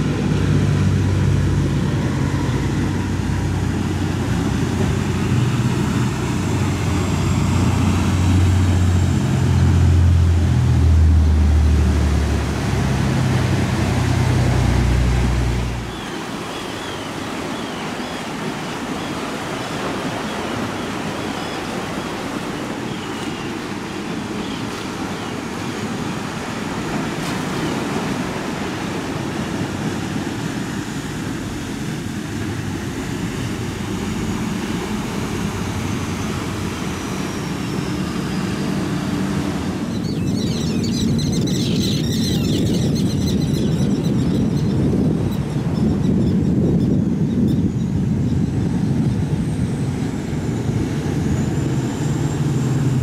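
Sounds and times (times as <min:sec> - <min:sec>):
breaking waves: 0:00.0 - 0:41.4
boat engines droning: 0:00.0 - 0:53.0
wind on microphone: 0:00.0 - 0:53.0.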